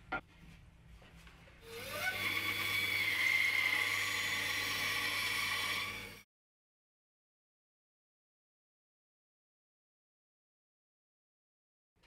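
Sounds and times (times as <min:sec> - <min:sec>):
bandsaw motor hum: 0:01.6 - 0:06.2.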